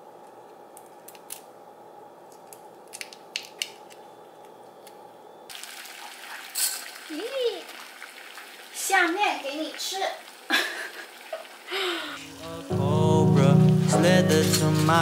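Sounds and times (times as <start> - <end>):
steady low hum: 0.0 - 5.5
boiling water hissing: 5.5 - 12.7.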